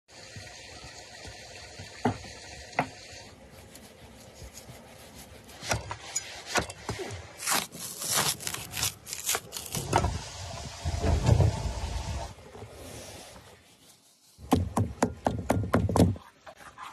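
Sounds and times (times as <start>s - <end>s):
fat ripping from ribs: 7.4s - 9.8s.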